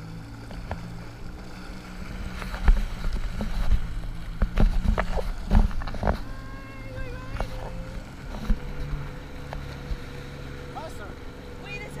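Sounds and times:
jet ski engine humming: 0.0 - 12.0
water slapping: 0.0 - 12.0
hull thumps and splashes: 0.4 - 10.5.

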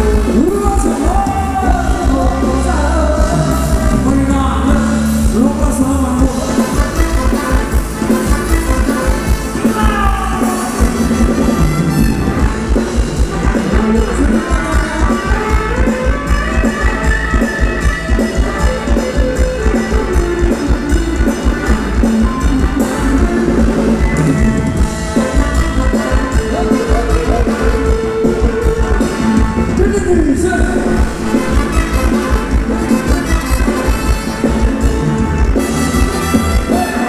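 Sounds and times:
drum kit beat: 0.0 - 37.0
live band playing dance song: 0.0 - 37.0.

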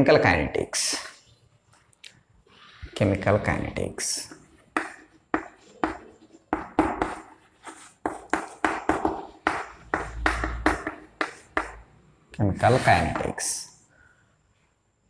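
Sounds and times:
chalk tapping on chalkboard: 4.1 - 11.9, 12.6 - 13.5.

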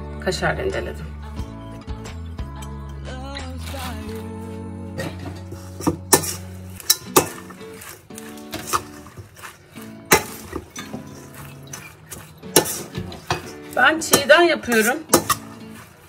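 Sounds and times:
background music: 0.0 - 16.0
metal spoon clinking in bowl: 10.1 - 15.6.

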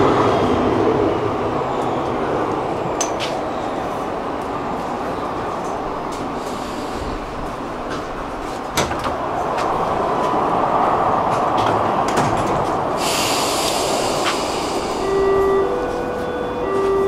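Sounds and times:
metro train running: 0.0 - 17.0
steady hiss: 13.0 - 15.1.

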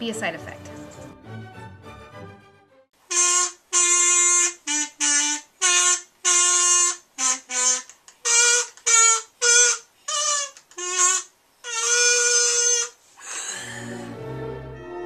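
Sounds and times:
small wind instrument tune: 3.1 - 13.0.

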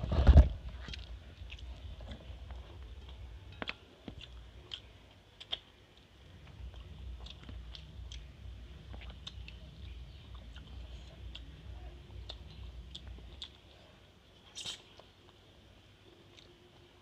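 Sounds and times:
person chewing food: 0.7 - 11.6, 12.2 - 15.5, 16.3 - 16.6
small wet mouth clicks: 14.4 - 15.4.

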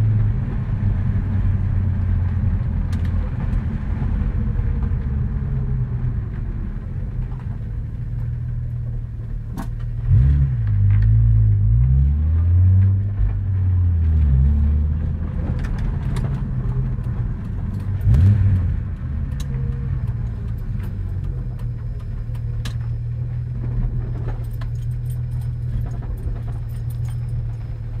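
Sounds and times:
car engine low drone: 0.0 - 28.0
light clicks and rattles: 15.4 - 28.0.

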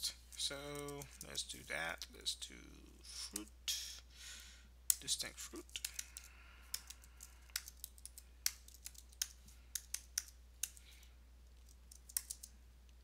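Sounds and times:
computer keyboard typing: 5.6 - 10.9, 11.6 - 12.5.

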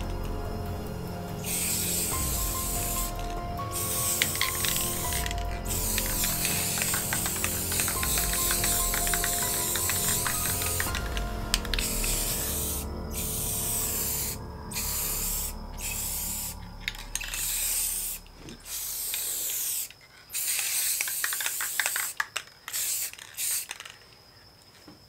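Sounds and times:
spray paint can hissing: 0.0 - 24.0
sharp clicks: 4.0 - 12.1.

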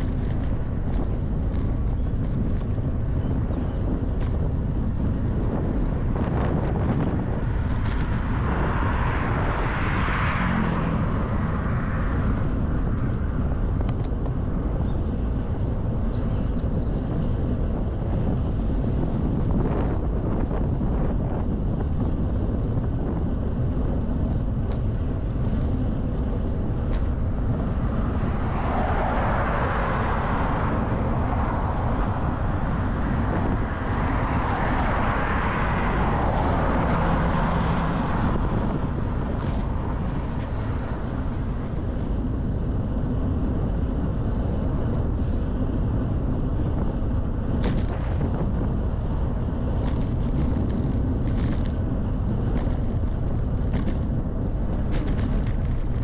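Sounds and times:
wind rushing over microphone: 0.0 - 56.0
cars passing: 4.7 - 19.9, 21.8 - 56.0.

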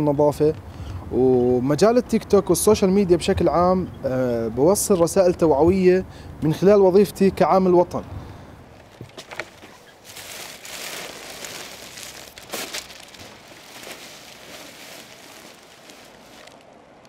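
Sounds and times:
plastic rubbish bag rustling: 8.8 - 17.0.

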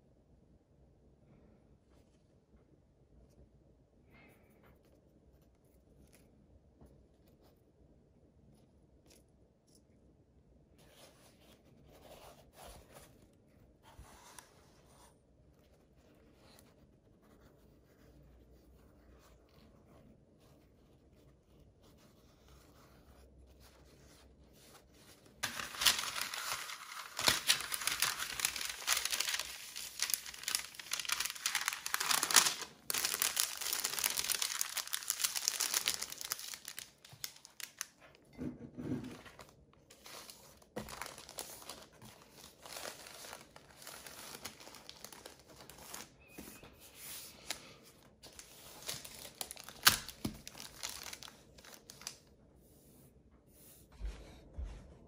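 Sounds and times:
paper rustling and crinkling: 19.0 - 38.3, 39.0 - 52.3.

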